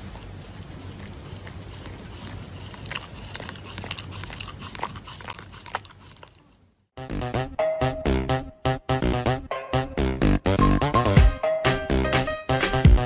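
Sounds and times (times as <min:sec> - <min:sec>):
dog chewing paper mask: 0:00.0 - 0:06.6.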